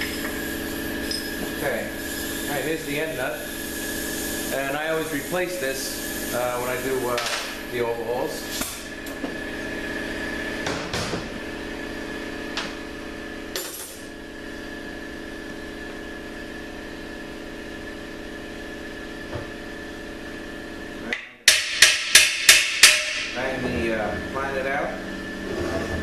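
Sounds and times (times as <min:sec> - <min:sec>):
steady shop hum: 0:00.0 - 0:26.0
hammer striking steel: 0:21.4 - 0:23.4.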